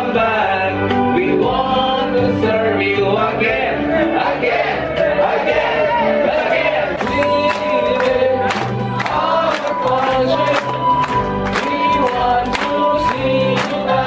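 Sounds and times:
group singing over music: 0:00.0 - 0:14.0
people clapping in time: 0:06.9 - 0:14.0.

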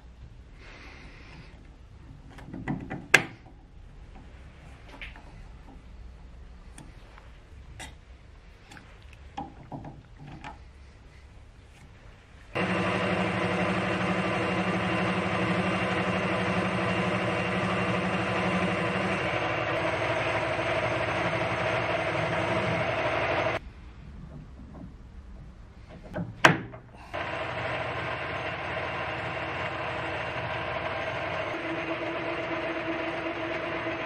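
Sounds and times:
metal lathe humming and whining: 0:12.6 - 0:23.6, 0:27.2 - 0:34.0.

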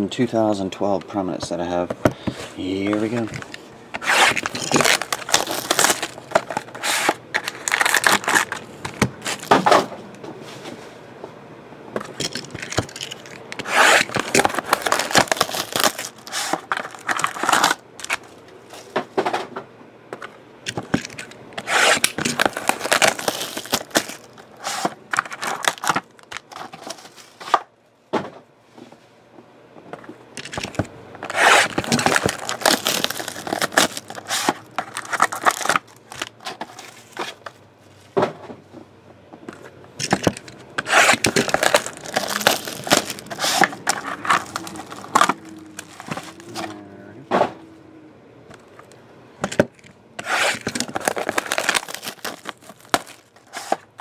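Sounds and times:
cardboard boxes scraping: 0:02.3 - 0:08.6, 0:13.6 - 0:17.8, 0:21.6 - 0:27.4, 0:31.2 - 0:35.8, 0:40.8 - 0:46.8, 0:50.2 - 0:53.9
plastic wrap tearing and crinkling: 0:02.9 - 0:09.7, 0:12.3 - 0:18.3, 0:20.8 - 0:27.2, 0:30.4 - 0:37.4, 0:40.0 - 0:46.7, 0:50.2 - 0:53.8.

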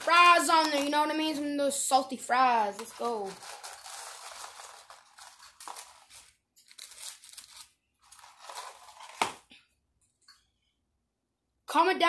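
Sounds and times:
paper packaging crinkling: 0:00.0 - 0:01.1, 0:02.7 - 0:09.5.

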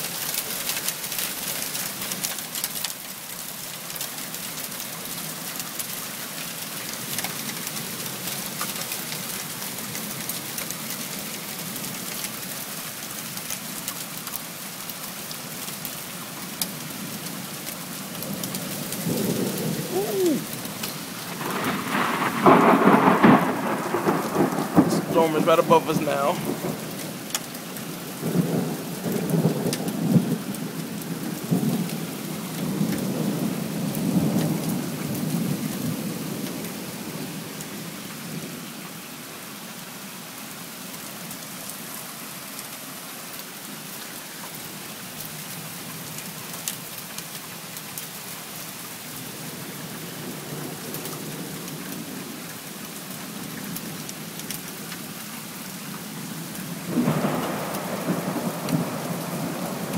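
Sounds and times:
heavy rain hissing: 0:00.0 - 0:59.9
thunder rolling: 0:21.2 - 0:26.9, 0:56.9 - 0:59.9.

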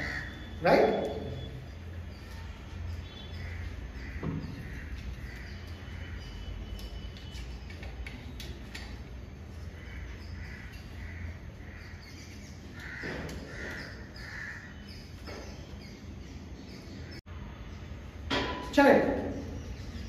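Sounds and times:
crows cawing: 0:00.0 - 0:00.6, 0:03.2 - 0:06.3, 0:09.7 - 0:15.0.

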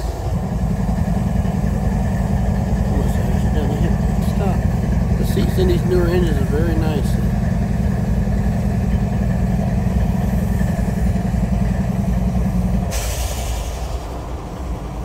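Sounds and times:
diesel locomotive engine rumbling: 0:00.0 - 0:15.0
burst of hiss: 0:12.9 - 0:14.1.

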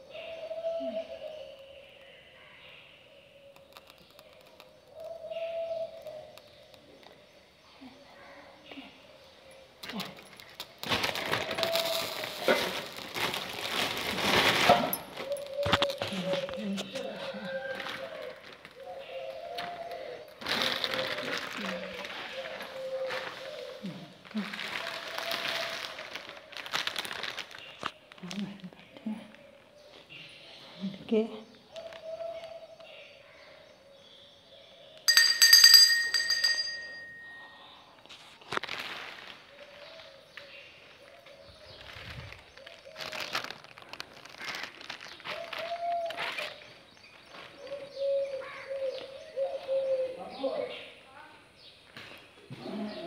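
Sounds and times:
small metal bell ringing: 0:35.1 - 0:37.8.

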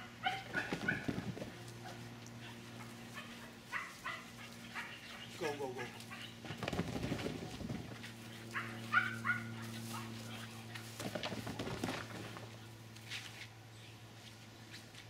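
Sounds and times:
dog barking: 0:00.0 - 0:01.2, 0:01.8 - 0:05.3, 0:06.0 - 0:06.4, 0:08.5 - 0:10.2
steady low hum: 0:00.0 - 0:15.0.

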